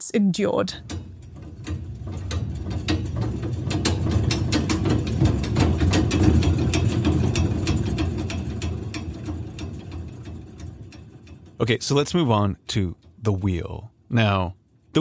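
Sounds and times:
steady low rumble: 0:00.6 - 0:14.3
ratcheting clicks: 0:00.7 - 0:12.3.

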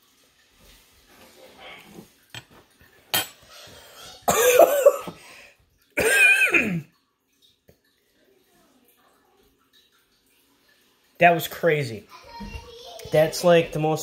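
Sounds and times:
man coughing: 0:04.3 - 0:05.1, 0:06.0 - 0:06.8.

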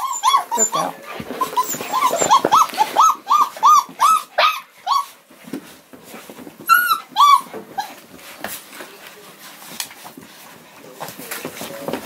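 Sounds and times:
dogs whining and yipping: 0:00.0 - 0:05.2, 0:06.6 - 0:08.1.

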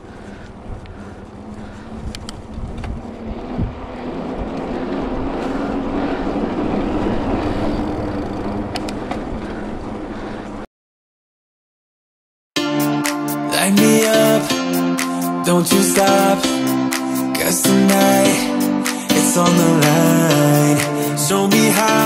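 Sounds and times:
wind noise: 0:00.0 - 0:10.6
bike tyres on asphalt: 0:00.0 - 0:10.7.

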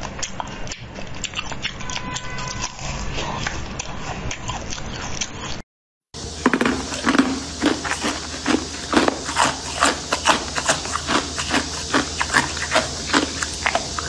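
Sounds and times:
ice crunching between teeth: 0:06.4 - 0:14.0.

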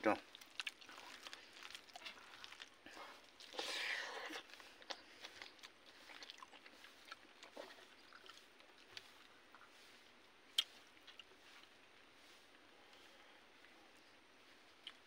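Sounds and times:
chewing: 0:00.2 - 0:12.0, 0:12.6 - 0:15.0
small clicks and crunches: 0:00.3 - 0:03.6.

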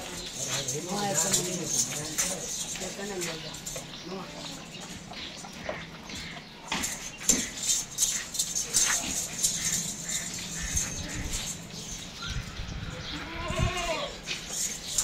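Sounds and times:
goat bleating: 0:13.1 - 0:14.3.

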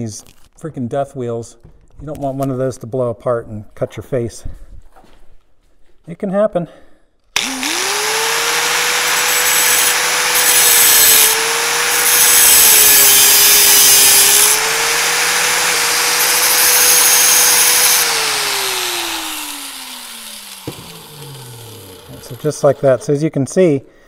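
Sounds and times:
grinder winding down whine: 0:07.4 - 0:23.0
angle grinder motor running: 0:07.4 - 0:23.1.

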